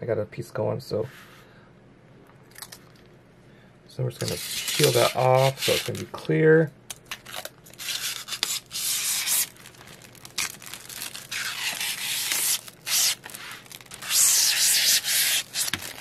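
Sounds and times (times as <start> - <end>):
plastic film peeling off: 4.2 - 6.1, 7.1 - 16.0.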